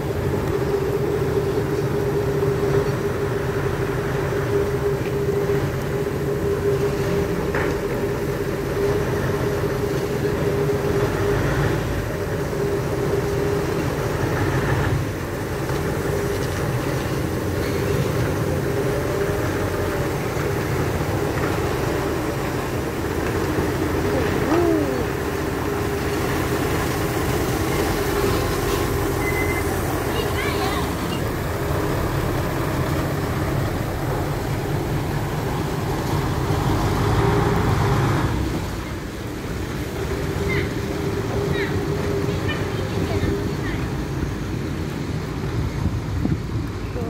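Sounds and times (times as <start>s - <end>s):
diesel truck engine running: 0.0s - 47.0s.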